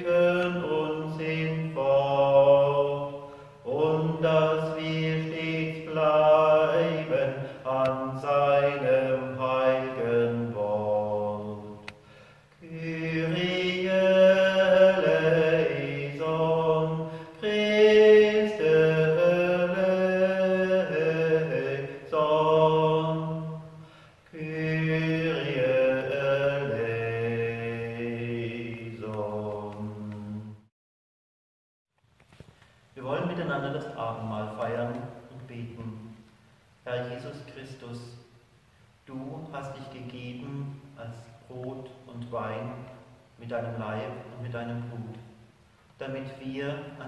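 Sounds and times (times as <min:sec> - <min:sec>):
man chanting: 0:00.0 - 0:11.9, 0:12.6 - 0:30.5, 0:33.0 - 0:38.2, 0:39.0 - 0:45.4, 0:46.0 - 0:47.0.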